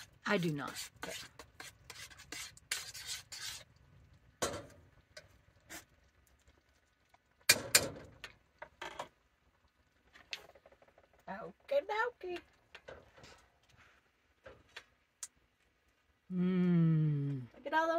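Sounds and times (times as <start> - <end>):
metal pot clanking on stove grate: 7.5 - 8.3.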